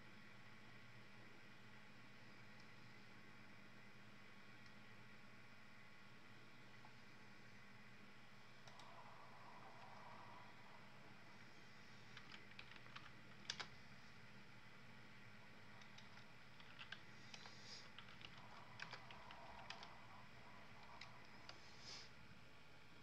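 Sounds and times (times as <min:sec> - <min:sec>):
computer keyboard keystrokes: 0:12.1 - 0:13.8, 0:15.8 - 0:20.0.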